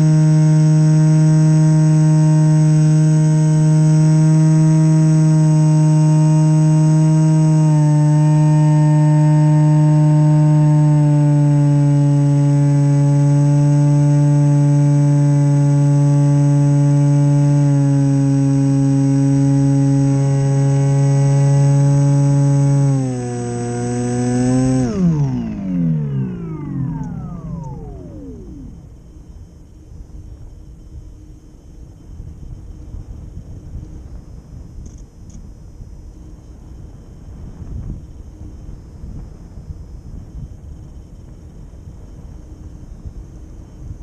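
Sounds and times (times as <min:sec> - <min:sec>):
electric motor propeller drone: 0:00.0 - 0:32.0.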